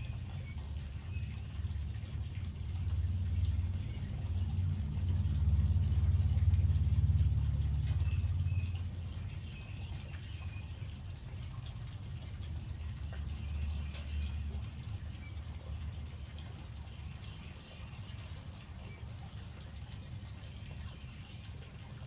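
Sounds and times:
low rumble: 0.9 - 9.3.

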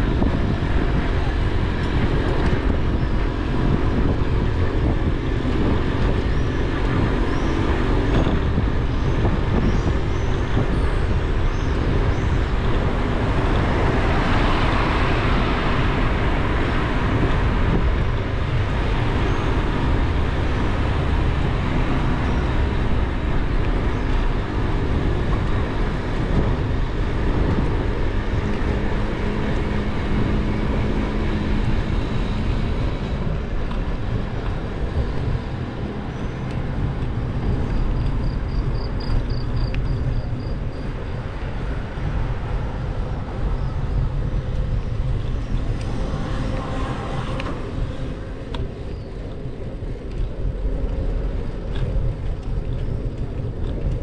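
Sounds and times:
road noise rumble: 0.0 - 54.0
wind buffeting microphone: 0.0 - 54.0.

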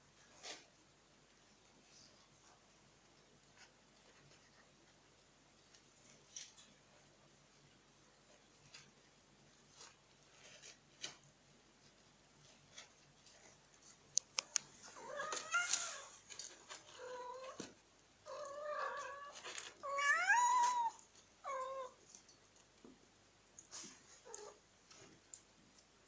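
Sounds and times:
sharp clicks: 14.1 - 14.7
cat meowing: 18.3 - 22.0.

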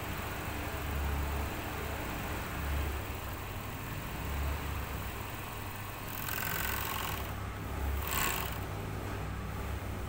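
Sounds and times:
overlock sewing machine humming: 2.2 - 8.8
higher-pitched whirr: 4.7 - 8.8.

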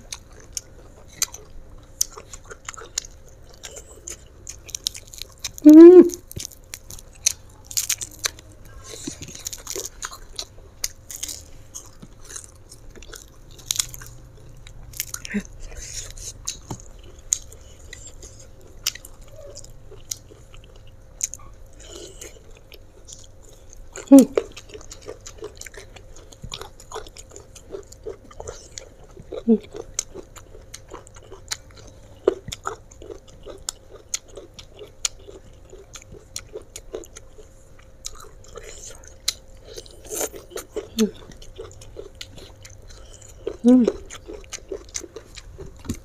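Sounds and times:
chewing and crunching food: 0.0 - 46.0
person humming: 5.6 - 6.2, 24.1 - 24.4, 40.9 - 41.2.

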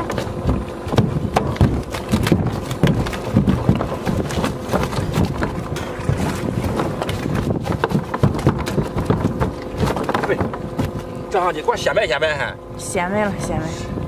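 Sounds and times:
knocks and clatters: 0.0 - 11.1
wind buffeting the microphone: 0.0 - 12.0, 12.9 - 14.0
water rushing: 0.0 - 13.7.

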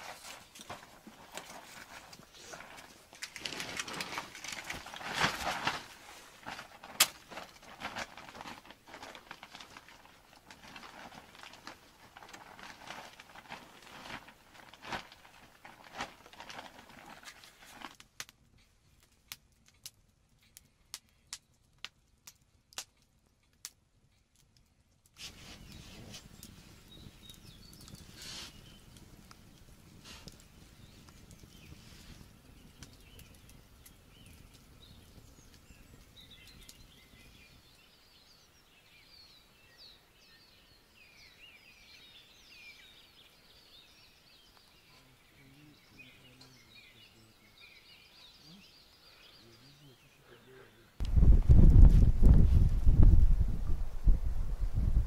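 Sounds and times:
hands rustling kindling: 0.0 - 18.0
low rushing of fire: 0.0 - 39.2, 51.0 - 55.0
burning wood crackling: 0.0 - 55.0.

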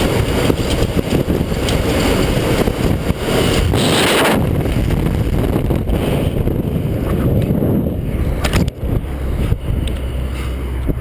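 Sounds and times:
aircraft engine drone: 0.0 - 11.0
rushing air: 0.0 - 11.0
wind buffeting microphone: 0.0 - 11.0.

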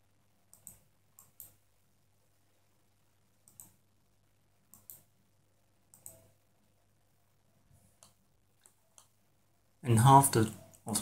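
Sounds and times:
computer mouse clicks: 0.5 - 1.6, 3.4 - 3.8, 4.7 - 5.1, 5.9 - 6.3, 8.0 - 9.2.

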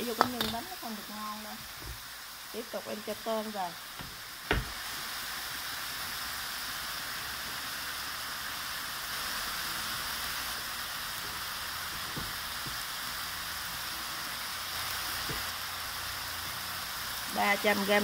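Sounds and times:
stir-fry sizzling in wok: 0.0 - 18.0.

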